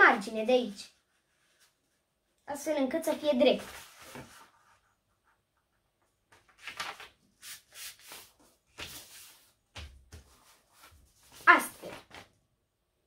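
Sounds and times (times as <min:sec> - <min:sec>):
paper rustling and rubbing: 0:03.4 - 0:05.4, 0:06.3 - 0:12.3.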